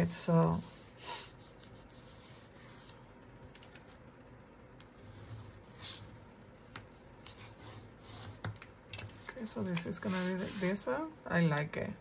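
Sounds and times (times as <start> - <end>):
hands rubbing paper: 9.6 - 10.9.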